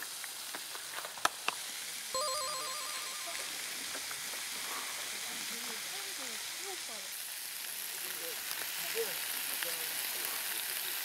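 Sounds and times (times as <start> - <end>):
meat sizzling on a grill pan: 0.0 - 2.1, 3.1 - 11.0
electronic ringtone trill: 2.2 - 3.6.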